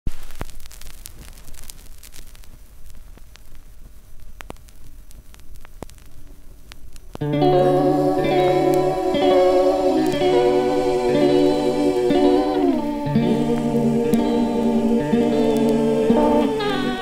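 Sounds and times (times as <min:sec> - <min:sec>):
record clicks and pops: 0:00.1 - 0:07.3
record surface hiss: 0:00.1 - 0:17.0
song with guitar and bass: 0:07.2 - 0:17.0.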